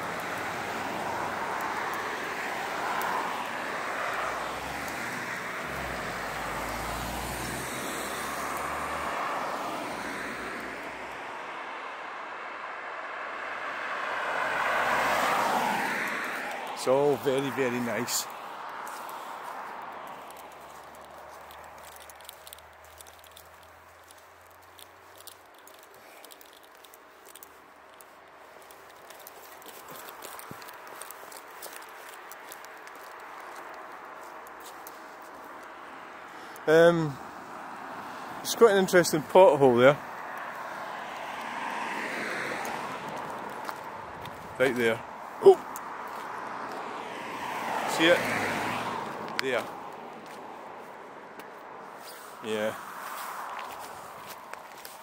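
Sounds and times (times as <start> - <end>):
cars passing by: 0.0 - 55.0
footsteps and camera handling clicks: 18.3 - 35.8, 42.6 - 44.5, 45.6 - 46.9, 49.1 - 51.7, 53.1 - 55.0.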